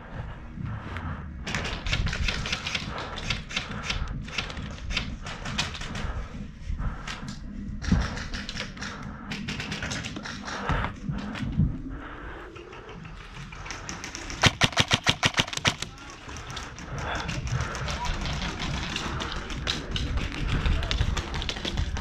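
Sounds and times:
airsoft guns firing in bursts: 0:01.5 - 0:05.9, 0:13.7 - 0:20.0.

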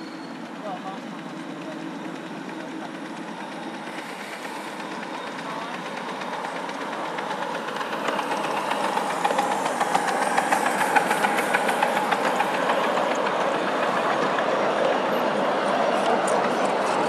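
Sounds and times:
train wheels rumbling on rails: 0:00.0 - 0:17.0
wheels clicking over rail joints: 0:04.8 - 0:17.0.

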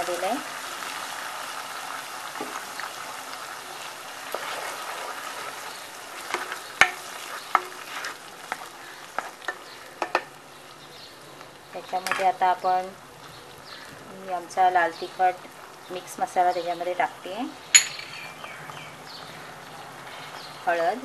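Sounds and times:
gravy sizzling in oil: 0:00.0 - 0:21.0
spatula tapping and scraping pan: 0:06.2 - 0:10.4.

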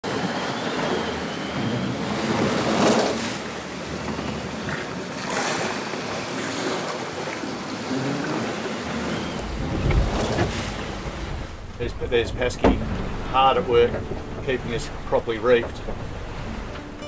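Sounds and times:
wind and waves rushing: 0:00.0 - 0:17.0
wind buffeting microphone: 0:08.5 - 0:17.0.

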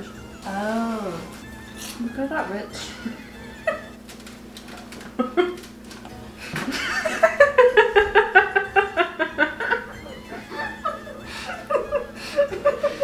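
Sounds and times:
women laughing hard: 0:02.9 - 0:04.0, 0:05.2 - 0:05.6, 0:06.4 - 0:13.0.

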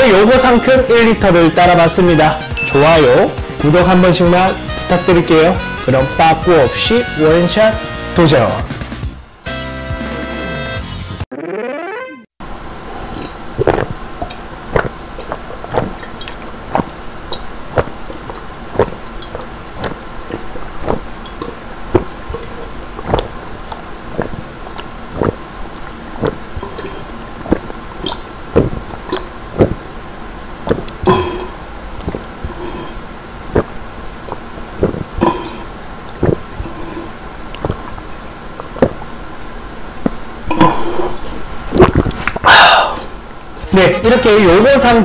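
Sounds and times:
faint steady hum: 0:12.4 - 0:45.0
man swallowing loudly: 0:12.5 - 0:44.2.

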